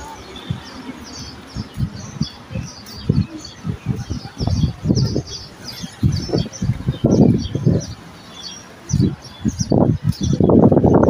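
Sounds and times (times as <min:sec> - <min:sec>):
low thumps and bumps: 0:00.0 - 0:08.0
small birds chirping: 0:00.0 - 0:11.0.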